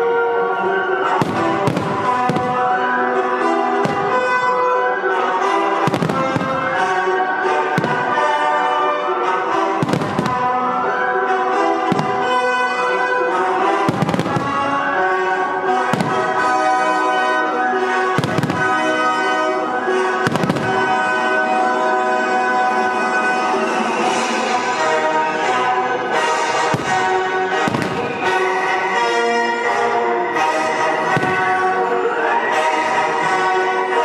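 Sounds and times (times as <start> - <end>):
orchestral music: 0.0 - 34.0
fireworks bangs: 0.8 - 34.0.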